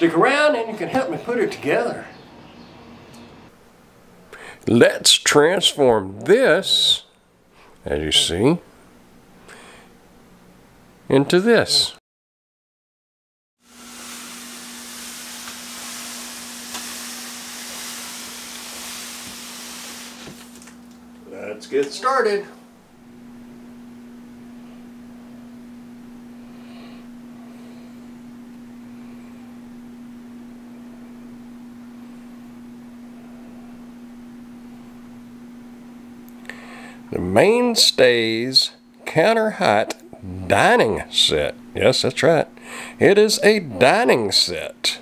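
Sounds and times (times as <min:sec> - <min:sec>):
room background hiss: 0:00.0 - 0:12.0, 0:13.6 - 0:45.0
faint hiss: 0:13.6 - 0:20.8
steady low hum: 0:13.7 - 0:45.0.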